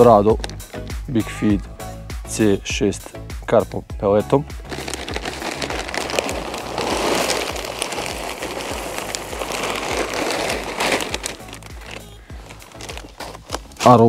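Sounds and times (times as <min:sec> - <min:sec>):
pellets pouring into a bucket: 0:04.7 - 0:14.0.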